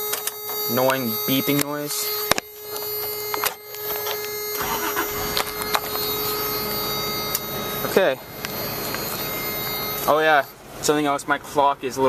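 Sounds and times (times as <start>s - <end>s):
ignition reminder buzzer: 0.0s - 10.8s
engine starting and idling: 4.6s - 6.6s.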